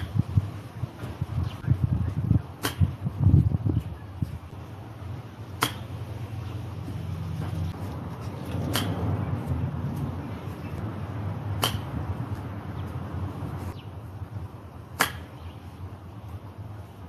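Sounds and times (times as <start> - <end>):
golf club striking ball: 2.6 - 3.0, 5.5 - 6.0, 8.5 - 9.1, 11.6 - 12.1, 14.9 - 15.5.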